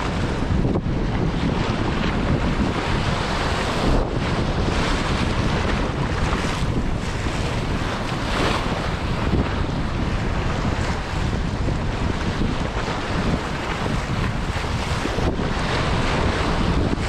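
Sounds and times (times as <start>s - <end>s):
waves breaking over rocks: 0.0s - 17.0s
wind buffeting microphone: 0.0s - 17.0s.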